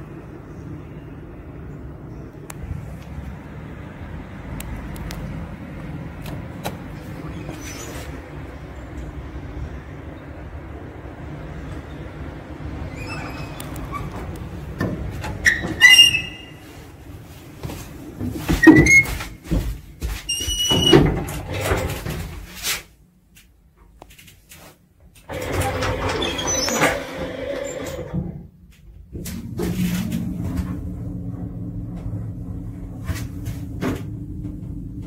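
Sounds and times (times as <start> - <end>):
lift doors whirring: 9.9 - 17.0, 25.3 - 28.4, 29.2 - 35.0
lift doors squealing and knocking: 11.7 - 16.9, 18.5 - 19.4, 20.3 - 22.0, 25.3 - 28.4.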